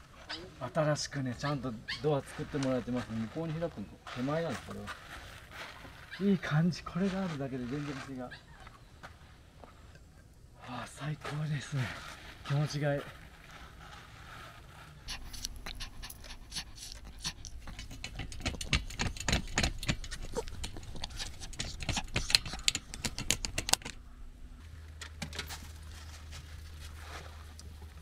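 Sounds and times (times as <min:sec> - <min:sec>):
dog panting: 0:15.0 - 0:23.8
steady low hum: 0:15.0 - 0:28.0.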